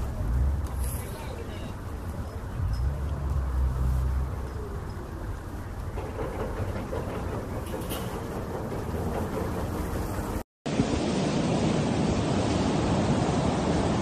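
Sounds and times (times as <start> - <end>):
street traffic rumble: 0.0 - 10.5.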